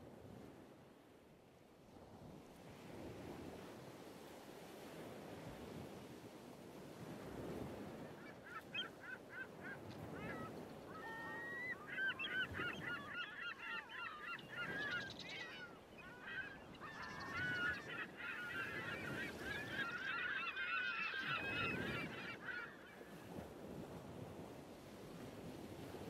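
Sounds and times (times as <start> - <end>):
flock of birds calling: 8.2 - 23.0.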